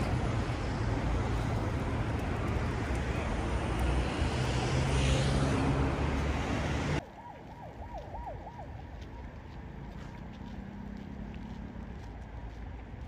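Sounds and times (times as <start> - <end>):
loud outdoor noise: 0.0 - 13.0
quiet street traffic: 0.0 - 13.0
emergency siren yelping: 6.7 - 9.4.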